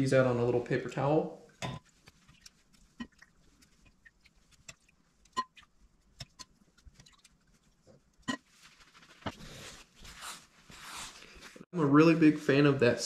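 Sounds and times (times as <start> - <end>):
paper towel rustling: 8.4 - 12.8.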